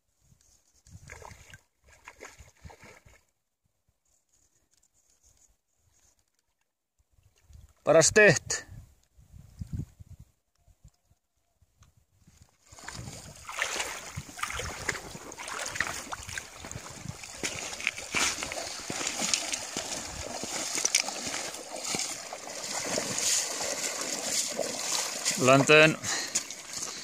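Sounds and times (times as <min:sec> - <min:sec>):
fish splashing in water: 0:12.7 - 0:27.0.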